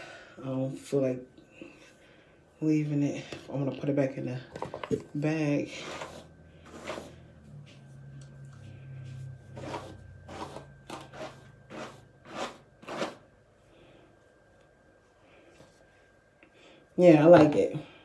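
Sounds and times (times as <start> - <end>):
brush swishing through wig: 5.3 - 13.3.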